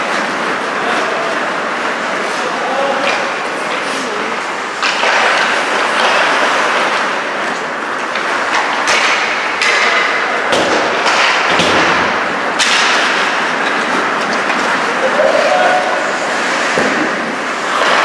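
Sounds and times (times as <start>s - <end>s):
skate blades scraping ice: 0.0s - 18.0s
knocks against the boards: 10.5s - 13.0s.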